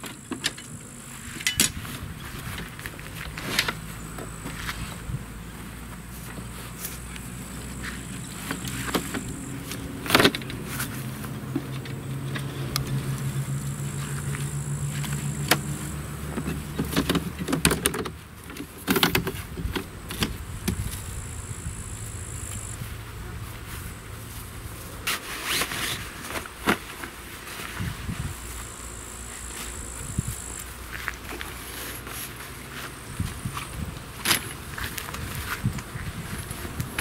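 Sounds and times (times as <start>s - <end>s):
folding table metal clicks and rattles: 0.0s - 3.8s, 16.3s - 20.8s
low steady hum: 0.0s - 37.0s.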